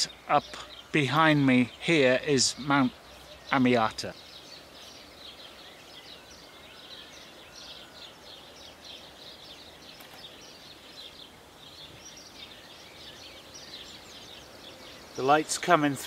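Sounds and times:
soft whistled bird calls: 0.0 - 16.0.

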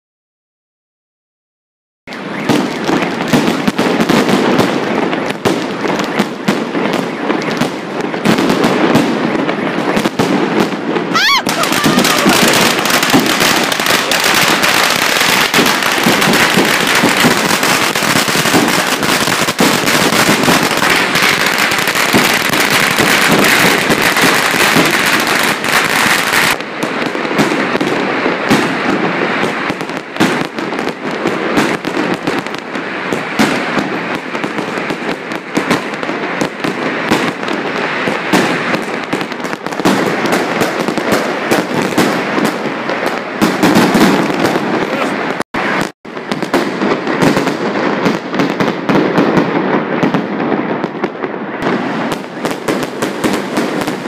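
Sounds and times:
firecrackers rattling: 2.1 - 50.9
fireworks bursting overhead: 2.1 - 54.0.

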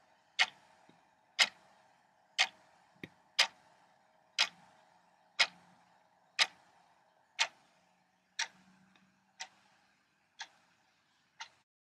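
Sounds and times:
clock ticking: 0.0 - 3.8, 4.4 - 7.7, 8.4 - 9.8, 10.4 - 10.8, 11.4 - 11.6.

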